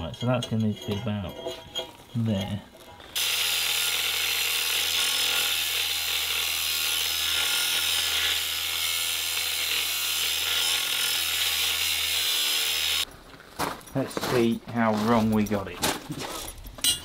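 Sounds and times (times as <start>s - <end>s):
angle grinder cutting steel: 0.0s - 13.1s.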